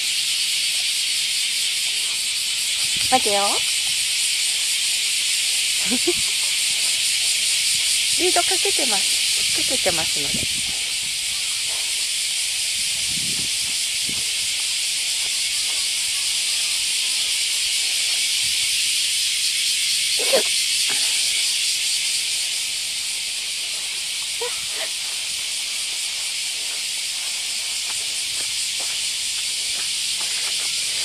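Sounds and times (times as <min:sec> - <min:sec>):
cicadas buzzing: 0:00.0 - 0:31.0.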